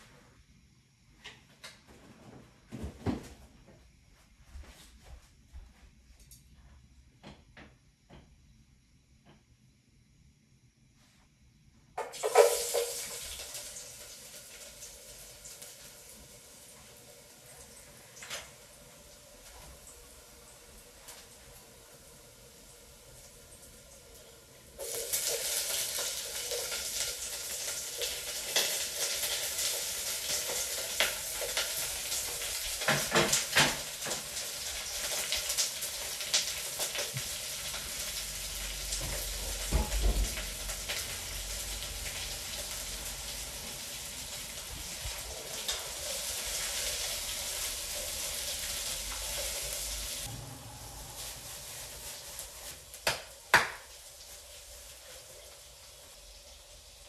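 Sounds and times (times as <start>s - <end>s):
vegetables sizzling in hot oil: 12.0s - 57.0s.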